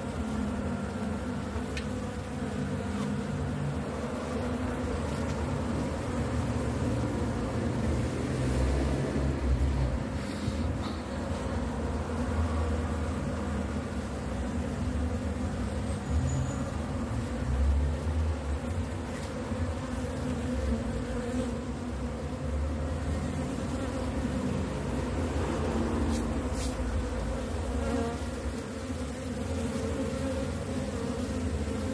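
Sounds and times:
bees buzzing: 0.0s - 31.9s.

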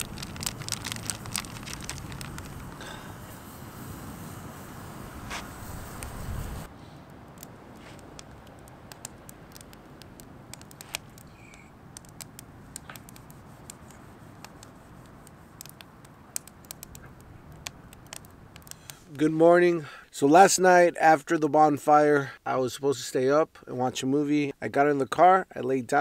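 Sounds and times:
campfire crackling and popping: 0.0s - 19.3s.

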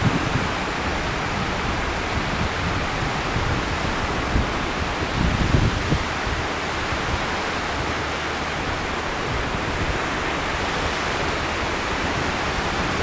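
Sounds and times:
waves washing on sand: 0.0s - 13.0s.

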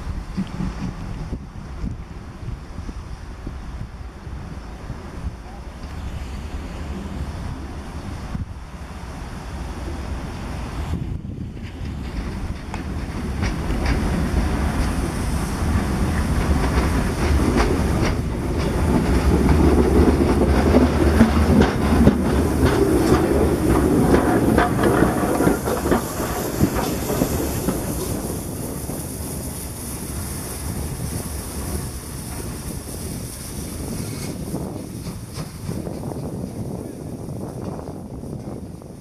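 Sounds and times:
train wheels clacking on rail joints: 0.0s - 2.0s, 11.2s - 39.0s
steam hissing: 2.6s - 39.0s.

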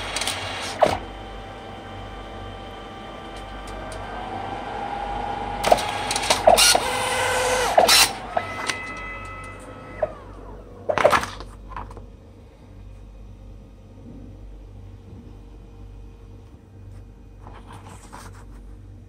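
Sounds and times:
photo printer motors whining: 0.0s - 11.4s.

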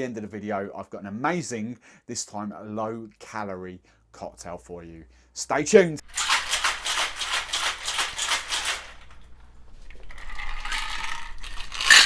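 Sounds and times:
rattle with ringing tone: 10.2s - 12.0s.

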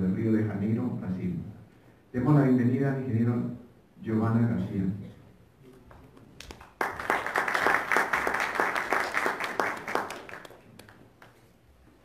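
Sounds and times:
audience applauding: 6.4s - 11.4s.

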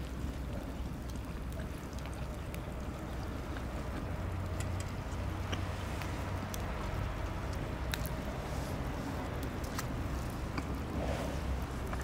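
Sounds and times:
faint crackles and clicks: 0.0s - 12.0s
low outdoor rumble: 0.0s - 12.0s.

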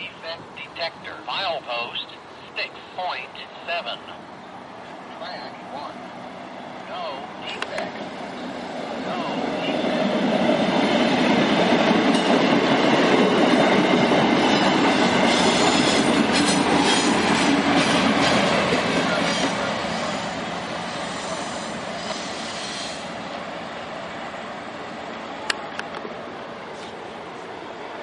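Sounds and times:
diesel locomotive passing: 0.0s - 28.0s
train wheels clicking over rail joints: 11.5s - 19.7s.

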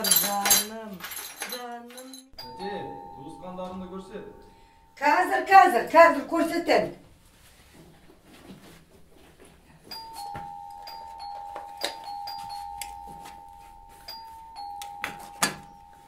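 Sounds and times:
knocks and clatters of handling: 0.0s - 2.3s
electronic doorbell two-tone ringing: 2.4s - 5.0s, 9.9s - 16.0s.

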